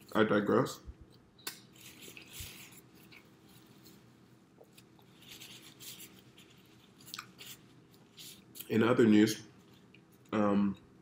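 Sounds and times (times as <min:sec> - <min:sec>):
paper wrapper crinkling: 0:04.8 - 0:08.8.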